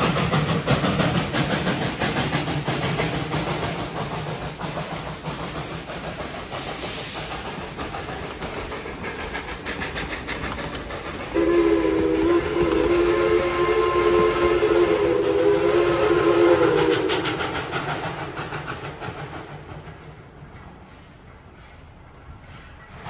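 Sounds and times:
train wheels clattering on rails: 0.0s - 23.0s
steam whistle: 11.3s - 17.5s.

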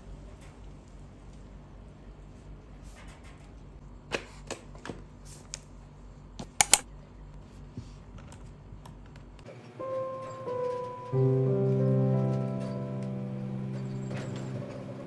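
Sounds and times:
sharp clicks and taps: 6.6s - 6.8s.

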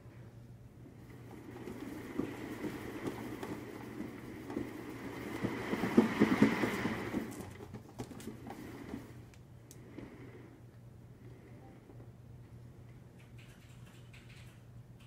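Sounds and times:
exercise wheel rolling rumble: 0.7s - 11.6s
faint high whine: 9.0s - 12.8s.

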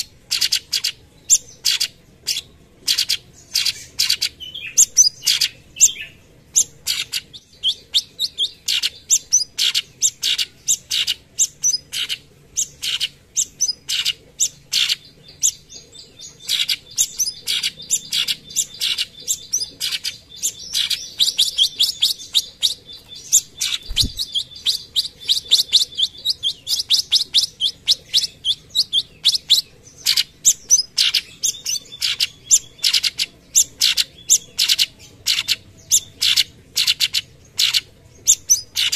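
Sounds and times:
bird singing sharp chirps: 16.3s - 38.9s.

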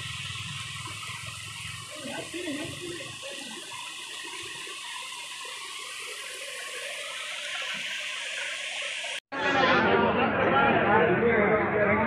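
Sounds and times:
floodwater rushing in stream: 0.0s - 9.2s.

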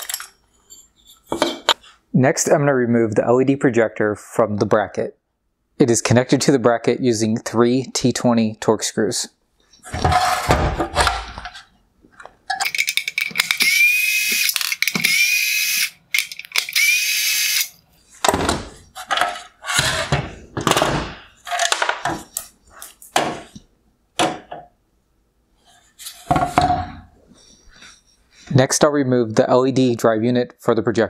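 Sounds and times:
plastic parts clunking: 0.0s - 0.4s, 9.8s - 15.2s, 16.1s - 16.8s, 18.2s - 23.6s
cordless screwdriver whirring: 13.4s - 17.8s.

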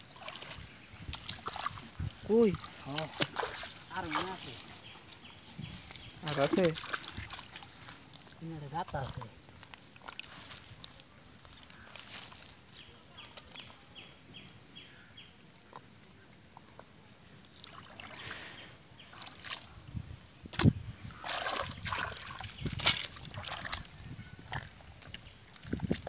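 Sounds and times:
hands squelching in wet mud: 0.0s - 13.8s, 17.4s - 19.8s, 20.5s - 26.0s
sharp wet slap: 20.5s - 23.9s.

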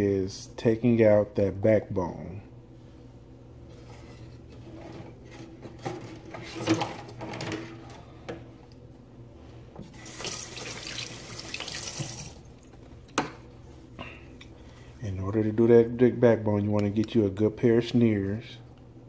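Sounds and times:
water running: 9.8s - 12.9s.

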